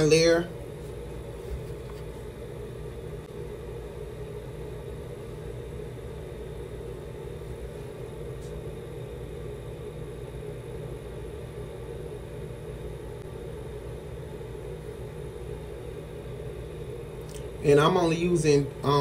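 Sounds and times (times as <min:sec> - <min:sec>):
ventilation fan humming: 0:00.0 - 0:19.0.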